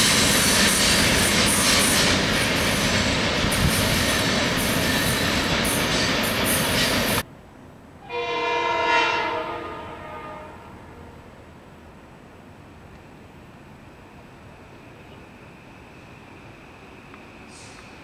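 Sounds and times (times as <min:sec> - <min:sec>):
freight train rumbling past: 0:00.0 - 0:18.0
train horn chord: 0:08.0 - 0:11.2.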